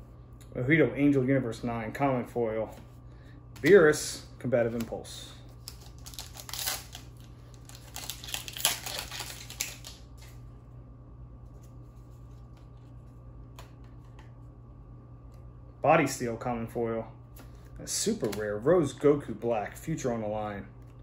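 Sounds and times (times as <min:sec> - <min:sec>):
low hum: 0:00.0 - 0:21.0
foil wrappers crinkling: 0:05.5 - 0:10.4.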